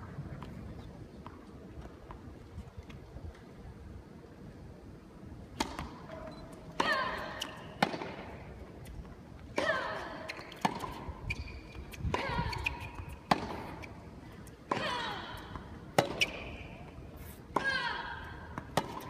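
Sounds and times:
rackets hitting tennis ball: 5.5 - 8.6, 9.5 - 14.0, 14.6 - 19.0.

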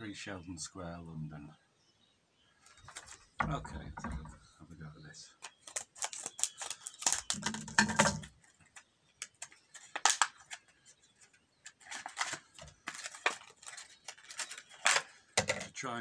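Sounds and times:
scissors cutting plastic: 5.4 - 7.8
plastic packaging crackling: 5.4 - 8.0, 9.2 - 10.8, 11.7 - 15.2.

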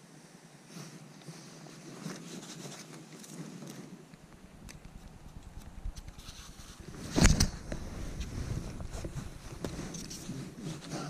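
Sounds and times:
wind rumble on microphone: 4.3 - 10.8.

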